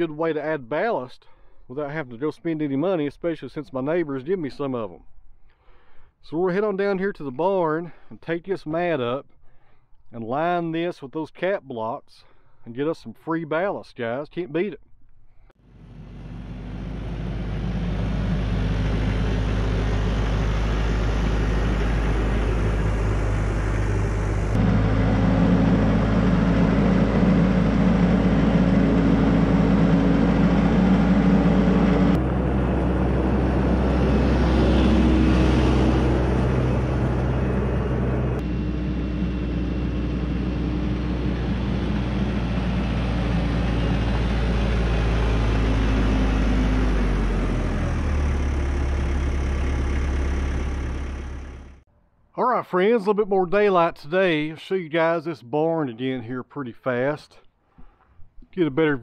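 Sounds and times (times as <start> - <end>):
diesel tractor engine running: 15.6 - 51.9.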